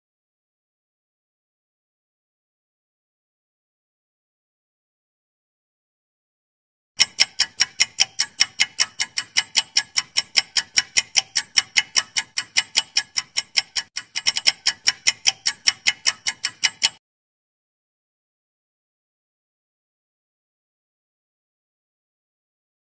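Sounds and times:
clock ticking: 7.0 - 17.0.

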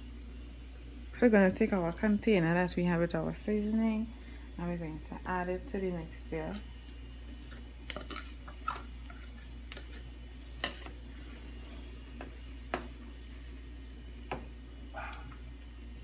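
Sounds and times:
steady low hum: 0.0 - 16.0
spoon stirring in a pot: 7.4 - 14.5.

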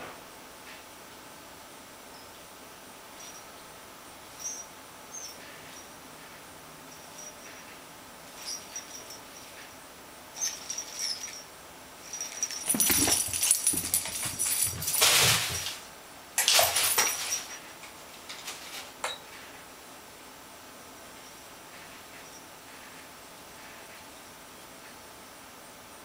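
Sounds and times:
small bell jingling: 10.4 - 11.4, 12.0 - 15.8, 16.4 - 17.6.

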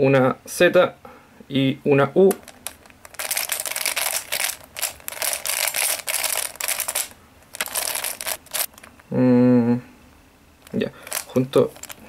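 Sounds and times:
puzzle layers clicking: 2.3 - 8.9.

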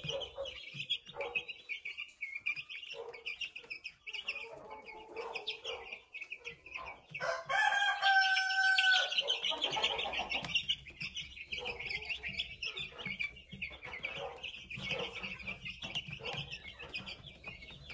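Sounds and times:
chicks peeping: 0.0 - 17.9
rooster crowing: 7.2 - 9.4.

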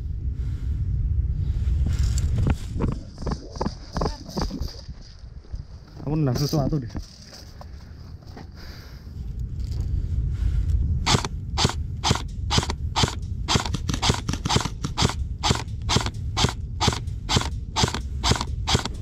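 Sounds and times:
wind on microphone: 0.0 - 6.1, 9.0 - 19.0
microphone handling noise: 1.7 - 8.5
airsoft gun shots: 11.1 - 19.0.

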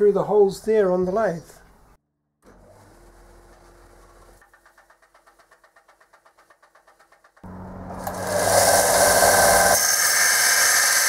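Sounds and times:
belt sander motor hum: 7.5 - 11.0
metal sanding hiss: 8.0 - 11.0.

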